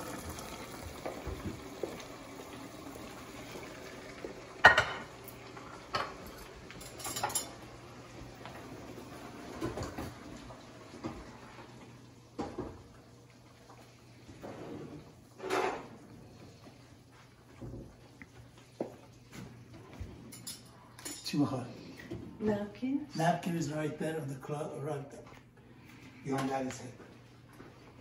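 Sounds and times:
dishes and cutlery clinking: 4.6s - 7.7s, 15.4s - 16.0s, 19.3s - 22.2s.

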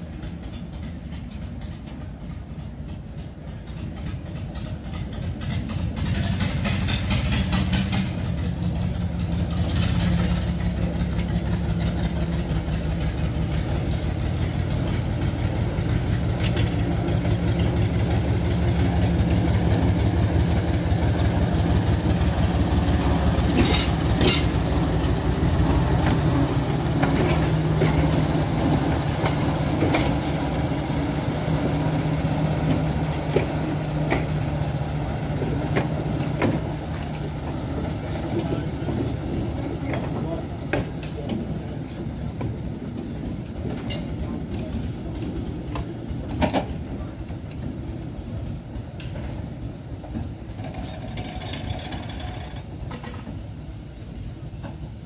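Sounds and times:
diesel locomotive engine under load: 0.0s - 55.0s.

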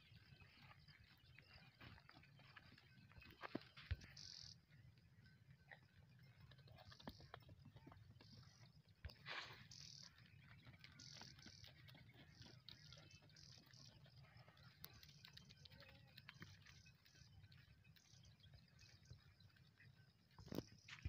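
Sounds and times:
footsteps on sandy stony ground: 0.0s - 4.5s, 9.1s - 14.8s
faint high chirps: 0.0s - 21.0s.

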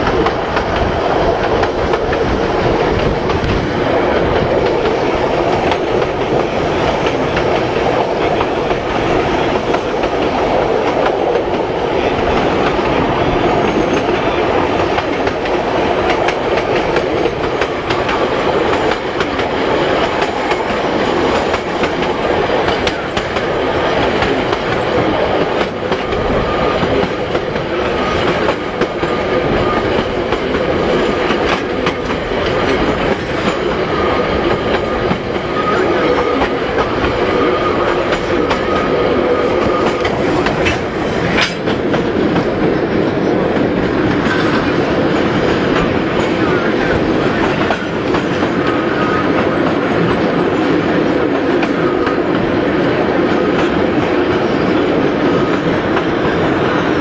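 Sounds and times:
rail joint clicks: 0.0s - 57.0s
train wheels rumbling on rails: 0.0s - 57.0s.

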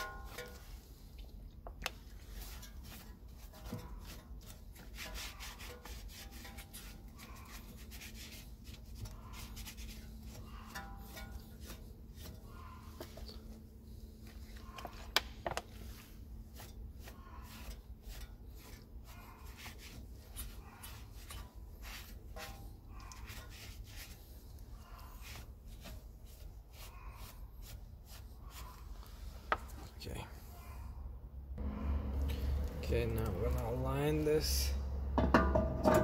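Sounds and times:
rag rubbing metal: 2.0s - 29.0s.

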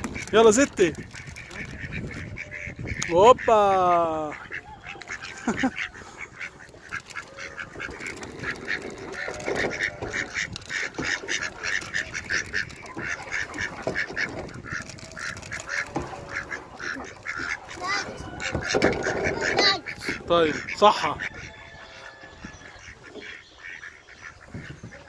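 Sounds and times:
ducks quacking: 0.0s - 25.0s.

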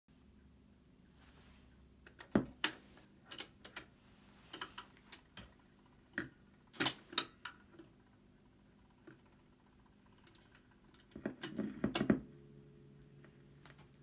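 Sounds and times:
faint motor hum: 0.1s - 14.0s
record changer mechanical clicks: 4.5s - 12.2s.

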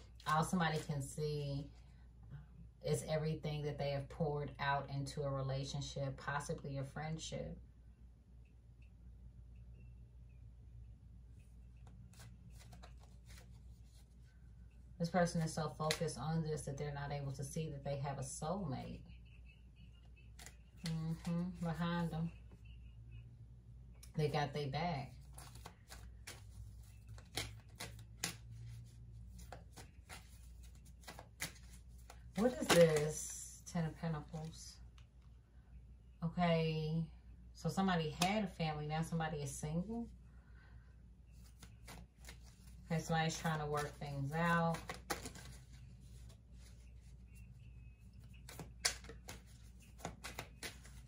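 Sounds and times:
faint low hum: 0.0s - 51.0s
cards snapping and tapping: 27.2s - 28.5s, 31.0s - 33.1s, 44.7s - 45.6s, 48.4s - 51.0s.

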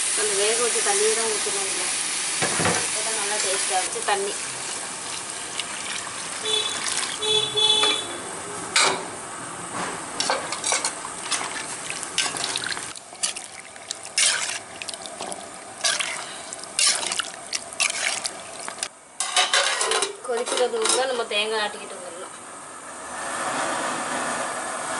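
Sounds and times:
liquid sloshing: 5.0s - 7.5s, 10.6s - 18.9s
metal ladle scraping a pot: 15.8s - 18.8s.

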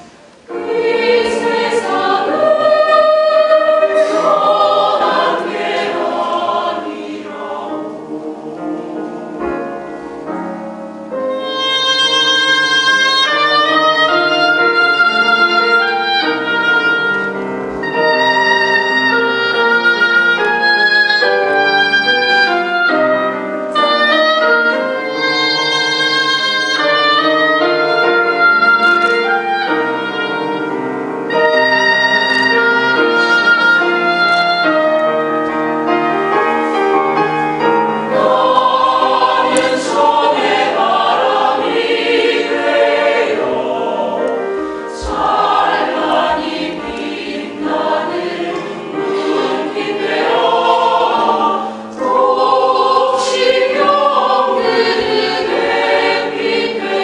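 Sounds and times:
choir singing: 0.0s - 57.0s
oboe solo: 11.3s - 36.0s.

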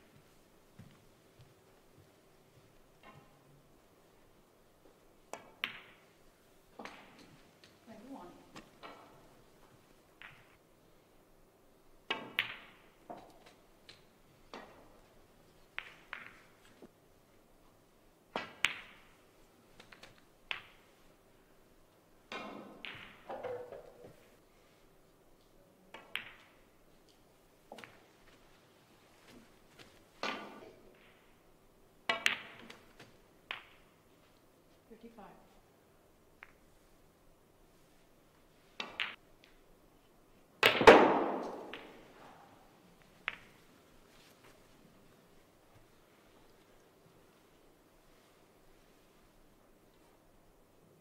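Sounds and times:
snooker balls clacking: 5.3s - 6.2s, 6.8s - 7.8s, 8.5s - 10.6s, 12.1s - 16.9s, 18.3s - 19.2s, 19.8s - 21.1s, 22.3s - 24.3s, 25.9s - 26.7s, 29.3s - 31.4s, 32.0s - 34.0s, 38.8s - 39.6s, 40.6s - 43.7s
cue tip striking ball: 40.6s - 42.1s.

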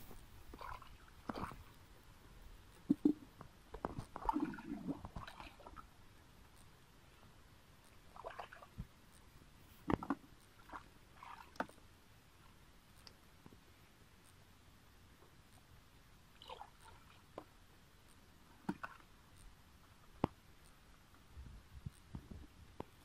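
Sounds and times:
splashing in muddy water: 4.1s - 5.8s.

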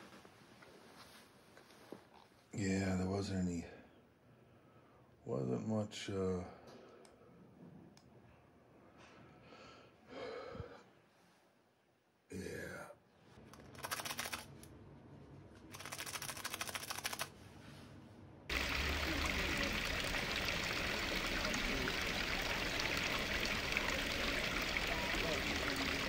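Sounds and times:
rapid clicking: 13.5s - 14.7s, 15.7s - 17.3s
running water: 18.5s - 26.0s.

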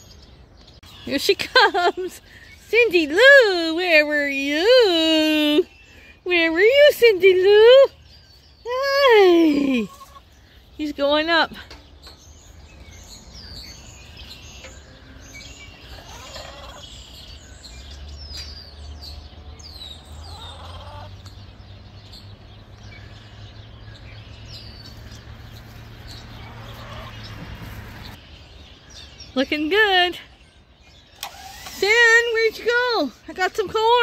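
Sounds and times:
small birds chirping: 0.0s - 34.0s
domestic fowl calling: 9.9s - 10.3s, 15.9s - 16.8s, 26.4s - 27.3s.

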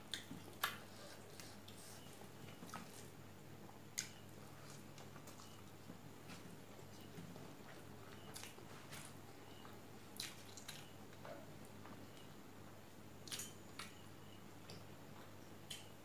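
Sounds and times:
wet eating sounds: 0.0s - 9.2s, 10.1s - 11.2s, 13.2s - 14.0s.

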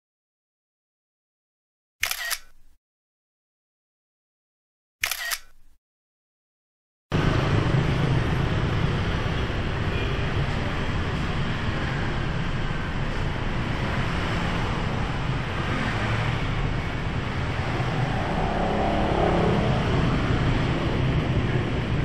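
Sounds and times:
street traffic noise: 2.0s - 2.7s, 5.0s - 5.6s, 7.1s - 22.0s.

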